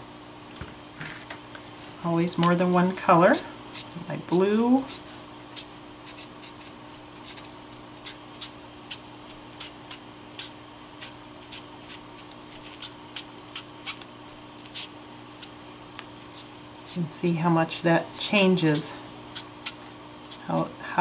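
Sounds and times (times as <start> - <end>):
faint steady hum: 0.0 - 21.0
marker tip scratching on card: 4.8 - 15.6, 16.3 - 17.0, 19.3 - 20.7.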